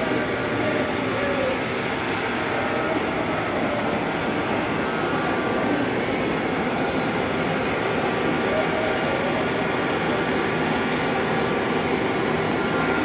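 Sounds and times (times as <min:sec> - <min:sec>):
textile machinery running: 0:00.0 - 0:13.0.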